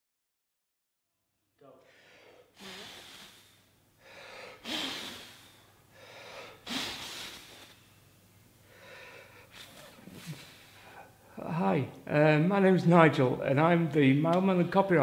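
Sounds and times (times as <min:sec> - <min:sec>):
man blowing puffs of air: 0:01.8 - 0:11.2.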